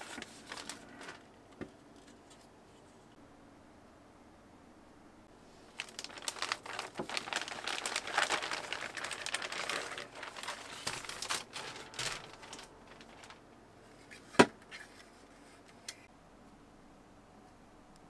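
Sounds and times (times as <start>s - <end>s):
toy packaging rustling and crinkling: 0.0s - 1.3s, 5.6s - 13.4s.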